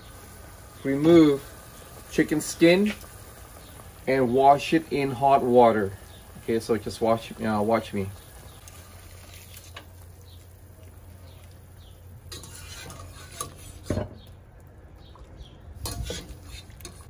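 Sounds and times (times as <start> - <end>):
wire skimmer clinking on metal pot: 15.8 - 17.0.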